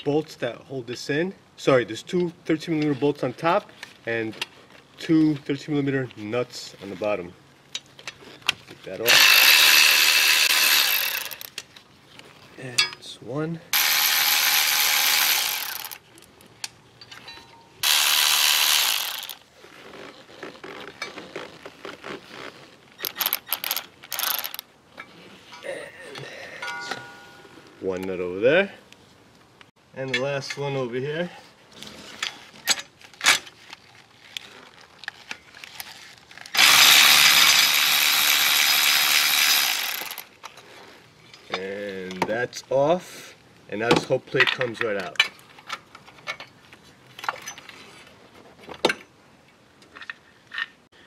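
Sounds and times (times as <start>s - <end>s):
electric ratchet spinning: 9.0s - 11.5s, 13.8s - 16.0s, 17.8s - 19.5s, 23.0s - 24.6s, 36.5s - 40.3s.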